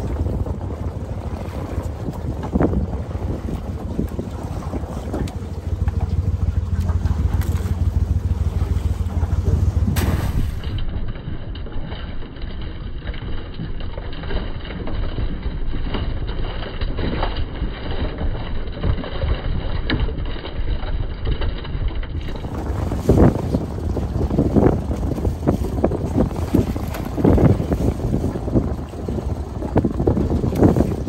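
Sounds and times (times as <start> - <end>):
wind buffeting microphone: 0.0 - 10.8, 22.2 - 31.0
low boat rumble: 0.0 - 31.0.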